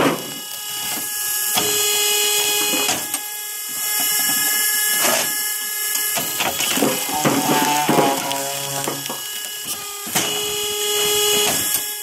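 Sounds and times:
electric motor whining: 0.0s - 12.0s
wood cracking: 6.1s - 10.5s.

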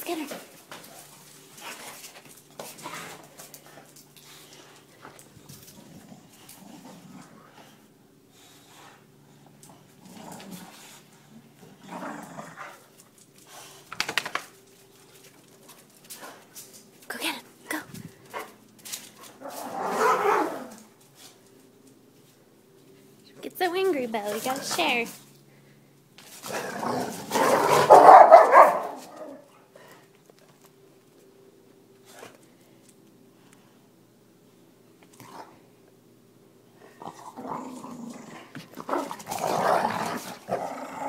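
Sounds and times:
dogs play-growling: 0.3s - 17.0s, 18.1s - 21.5s, 24.3s - 24.9s, 26.2s - 30.1s, 35.0s - 35.7s, 36.8s - 41.0s
dog barking angrily: 19.8s - 20.7s, 26.9s - 29.4s.

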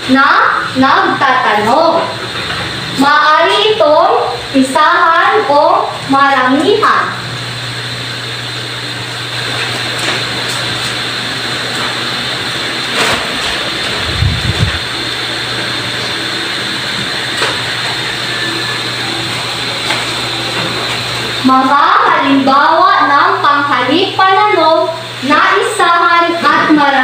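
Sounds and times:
room noise hiss and hum: 0.0s - 27.0s.

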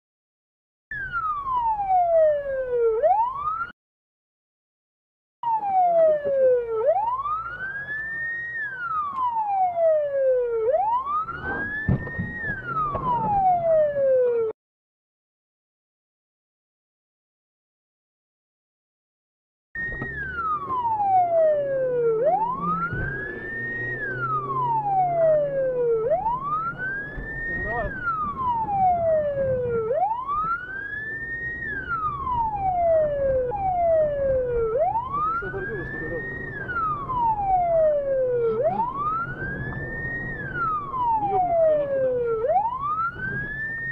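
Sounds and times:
police siren wailing: 0.9s - 3.8s, 5.4s - 14.6s, 19.8s - 43.9s
low vehicle rumble: 5.6s - 14.5s, 19.8s - 43.9s
dull knocks: 11.8s - 13.4s.

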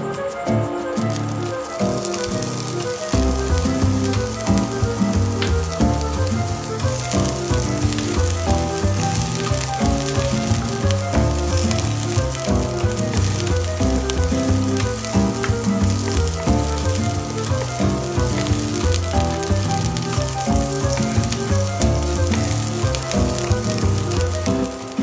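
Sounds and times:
background music with bass: 0.0s - 25.0s
onions sizzling in oil: 0.9s - 25.0s.

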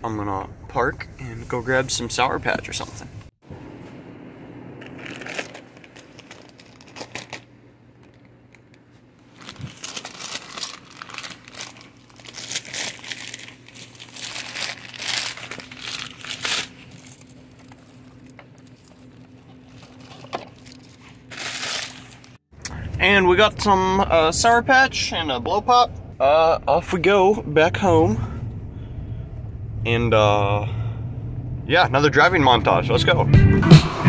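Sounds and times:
low steady hum: 0.0s - 34.0s
plastic bags crinkling: 4.8s - 22.4s.

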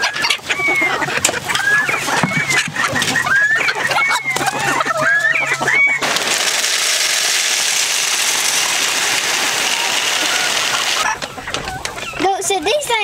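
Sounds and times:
chickens clucking and squawking: 0.0s - 13.0s
chicken feed pouring into feeder: 1.6s - 11.8s.

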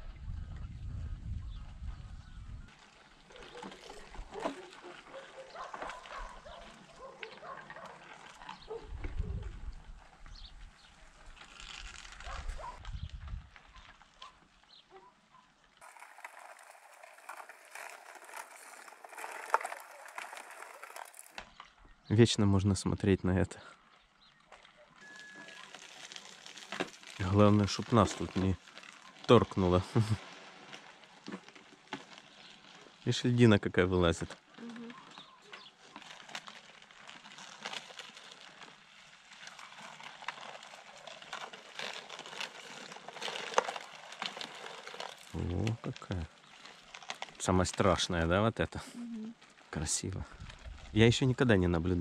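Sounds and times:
river ice crackling: 2.6s - 52.0s
sharp ice click: 11.2s - 12.9s, 15.8s - 21.8s, 24.4s - 33.2s, 34.2s - 47.9s.

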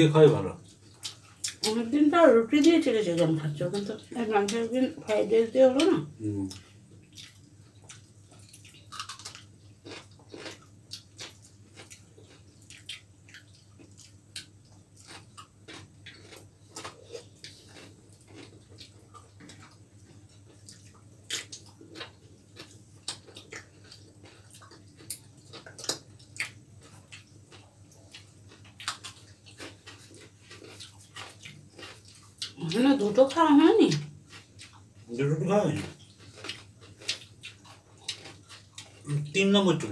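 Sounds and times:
faint low hum: 0.0s - 39.9s
chewing and mouth clicks: 0.6s - 1.9s, 2.6s - 35.1s, 35.7s - 39.4s.

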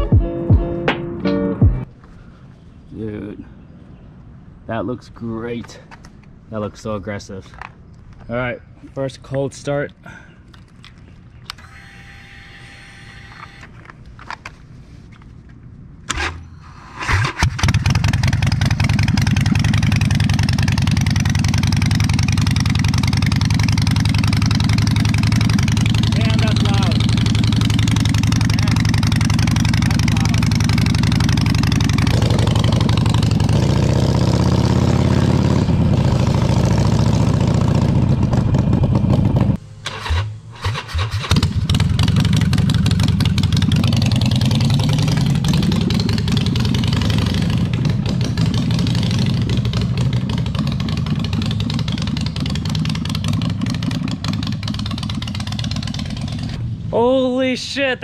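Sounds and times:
motorcycle engine idling and revving: 17.1s - 57.3s.

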